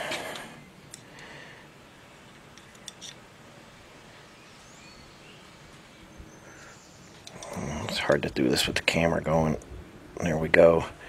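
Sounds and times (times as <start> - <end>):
small metallic clicks: 0.3 - 1.3, 2.3 - 3.2.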